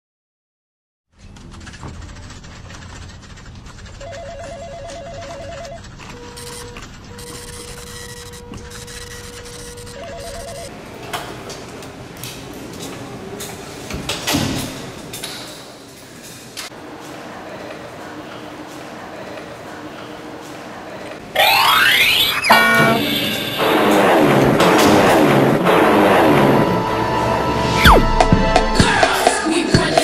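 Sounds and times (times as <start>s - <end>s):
telephone ringing with warbling trill: 4.0s - 5.8s, 9.9s - 10.7s, 21.4s - 24.3s
steady tone: 21.4s - 29.0s.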